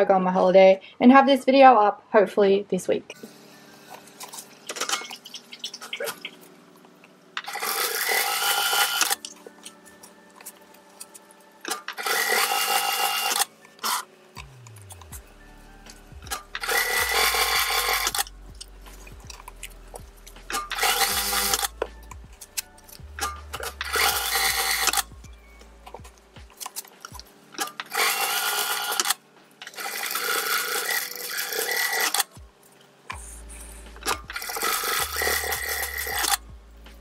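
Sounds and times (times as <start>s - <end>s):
quiet background music: 0.0s - 37.0s
industrial sewing machine running: 16.6s - 18.3s, 20.7s - 21.7s, 29.8s - 32.2s, 34.4s - 36.4s.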